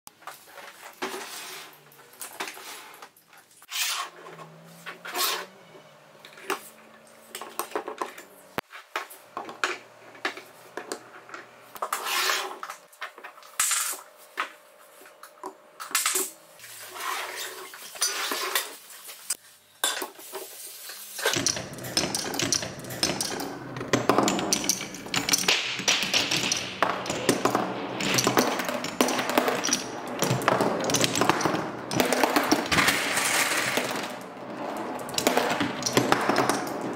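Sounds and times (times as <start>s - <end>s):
marbles rolling down wooden tracks: 21.3s - 36.9s
wooden pieces clacking: 21.3s - 36.9s.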